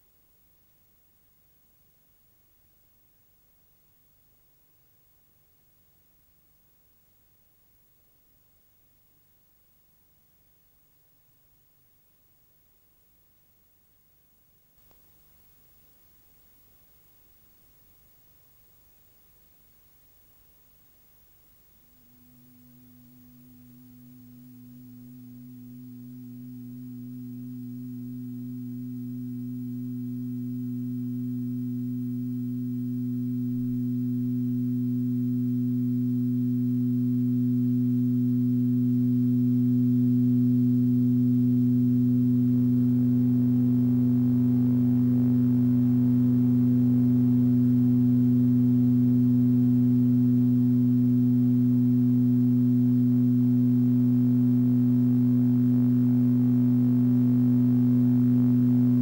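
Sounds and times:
faint higher tones: 20.8 - 59.0
low drone of steady tones: 22.2 - 59.0.

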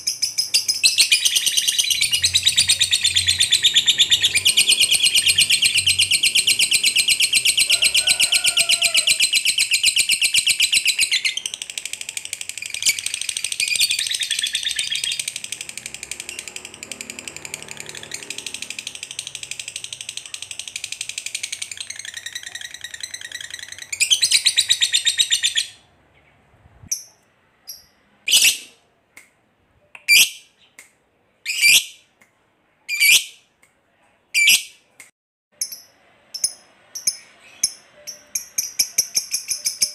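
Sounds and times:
bird sharp chirps: 0.0 - 7.7
bird chattering trill: 0.0 - 25.7, 36.4 - 39.9.

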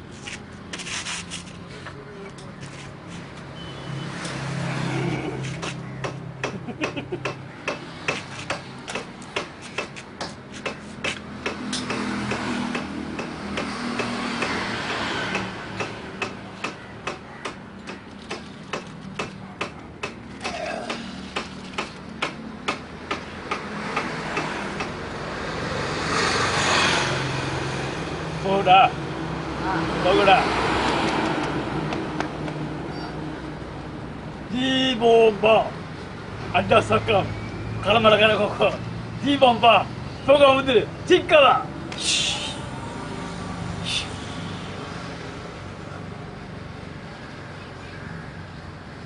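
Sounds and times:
road traffic: 0.0 - 49.0.

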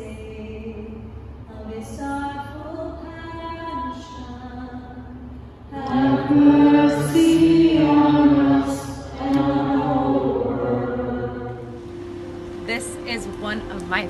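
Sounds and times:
congregation singing a chant: 5.7 - 14.0.

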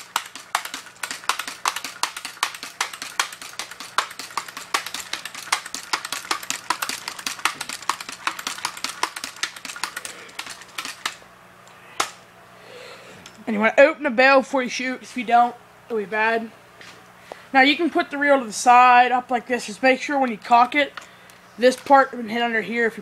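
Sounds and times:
air gun pump lever clacking: 0.0 - 11.2.

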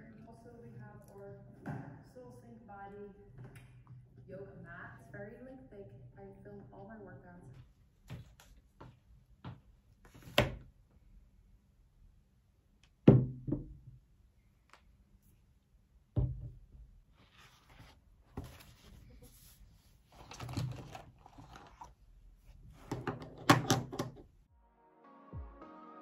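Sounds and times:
book pages rustling: 17.1 - 22.9
music: 24.5 - 26.0.

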